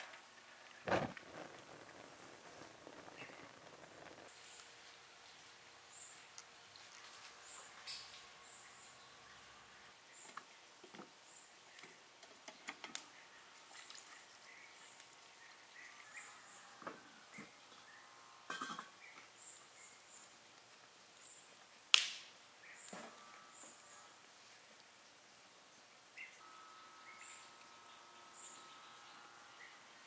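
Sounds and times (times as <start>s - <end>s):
birds chirping: 2.1s - 20.4s, 24.9s - 30.0s
small clicks and knocks: 11.8s - 13.1s.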